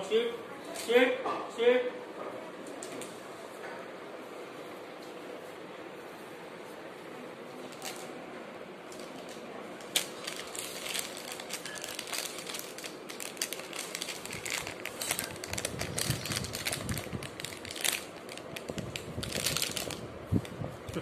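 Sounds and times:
plastic wrapper crinkling: 0:08.9 - 0:20.6.

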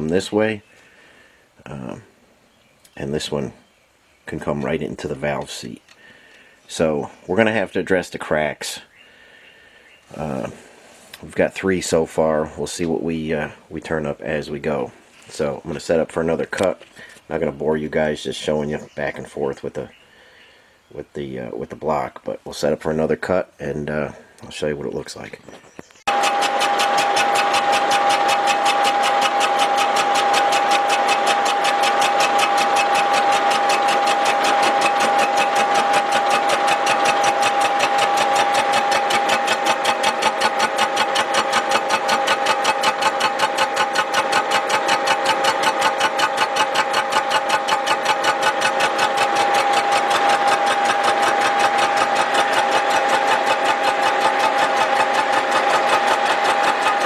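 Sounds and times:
milling cutter whining on iron: 0:26.0 - 0:57.0.

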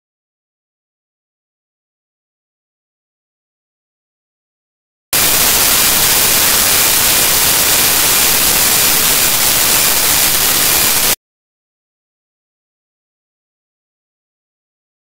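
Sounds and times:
loud static hiss: 0:05.2 - 0:11.2.

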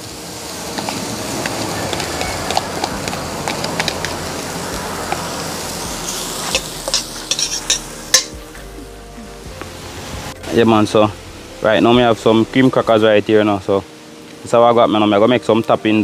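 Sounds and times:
butter sizzling in a pan: 0:00.0 - 0:08.6
metal spoon scraping a pan: 0:06.0 - 0:08.4
spoon clinking against pan: 0:06.9 - 0:08.4.

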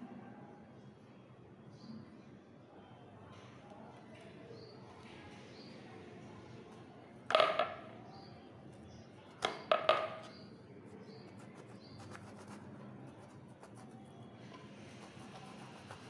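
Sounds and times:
knife knocking on wooden board: 0:07.3 - 0:07.9, 0:09.4 - 0:10.4.

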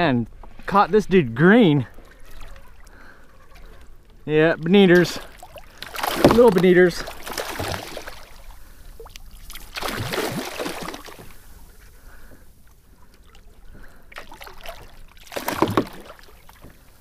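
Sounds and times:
water splashing: 0:00.0 - 0:17.0
fish thrashing at surface: 0:05.0 - 0:08.4, 0:09.5 - 0:11.3, 0:14.2 - 0:16.4.

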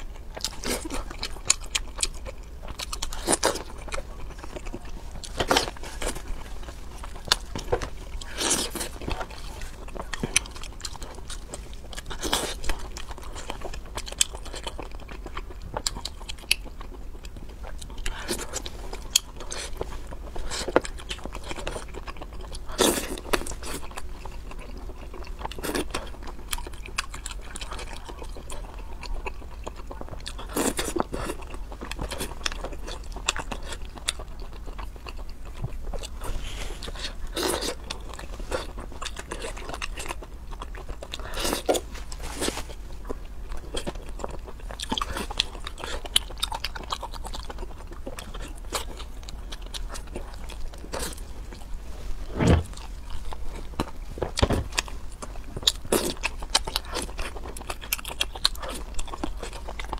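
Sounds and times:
chewing and biting: 0:00.0 - 0:59.9.

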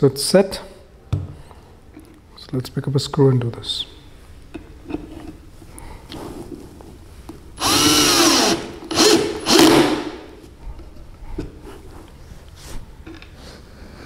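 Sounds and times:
cordless drill driving screw: 0:07.6 - 0:10.1.

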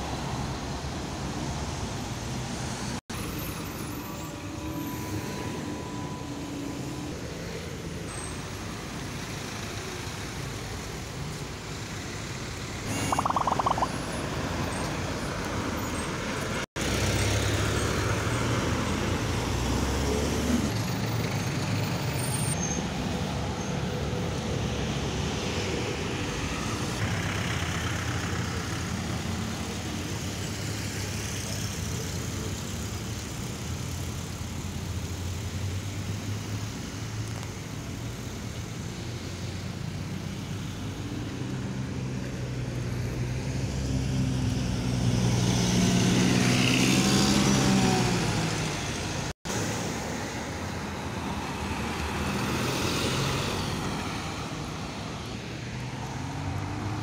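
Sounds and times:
brief high tone: 0:12.9 - 0:14.0.

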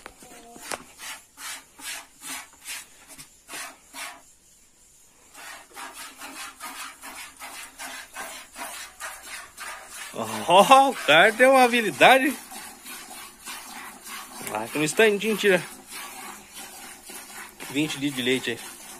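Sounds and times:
milk squirting into a pail: 0:05.7 - 0:18.9.

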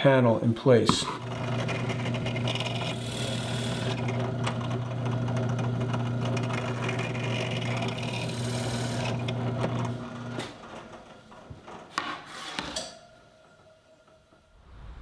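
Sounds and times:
drill press motor hum: 0:01.2 - 0:10.6.

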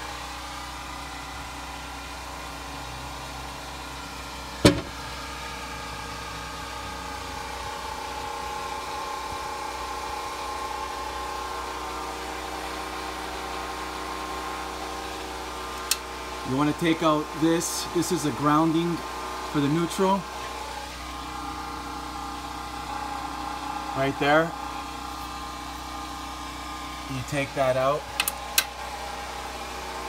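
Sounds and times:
generator engine running: 0:00.0 - 0:30.0
sharp knock: 0:04.6 - 0:05.0.

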